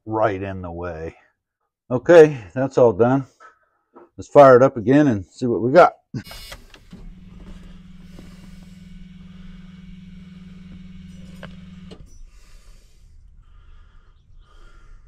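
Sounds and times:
electric fuel pump humming: 6.2s - 14.0s.

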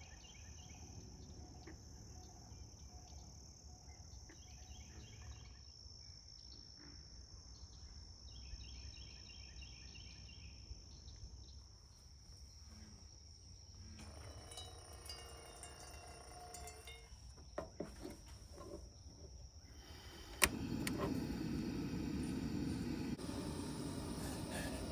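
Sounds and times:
insects droning trill: 0.0s - 24.9s
faint chirping calls: 8.3s - 24.9s.

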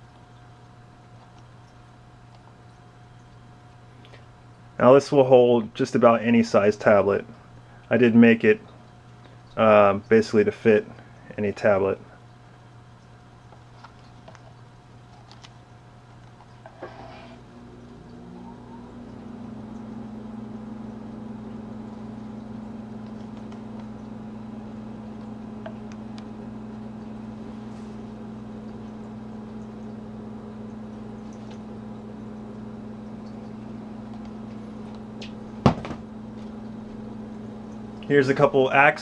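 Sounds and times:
low room hum: 0.0s - 39.0s.

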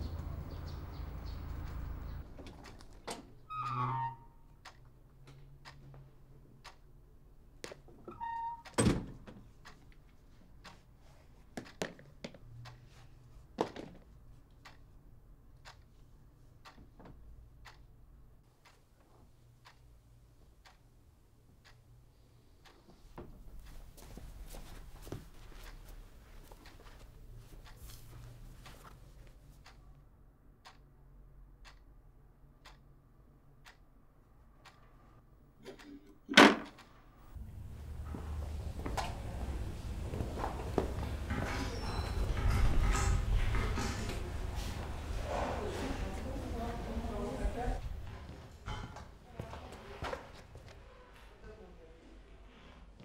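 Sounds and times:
clock ticking faintly: 4.6s - 7.2s, 9.4s - 10.9s, 14.4s - 36.0s.

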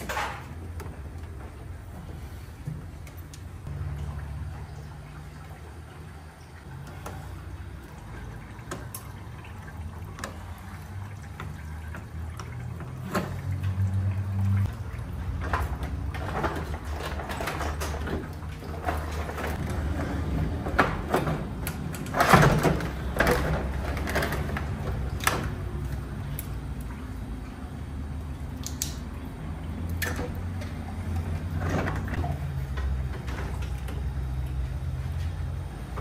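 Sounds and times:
knocks and clatters: 15.3s - 25.6s.

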